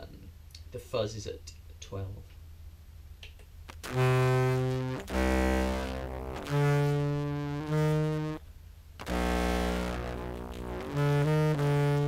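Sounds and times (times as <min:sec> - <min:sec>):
low fuzzed clarinet notes: 0:03.7 - 0:08.4, 0:09.0 - 0:12.0.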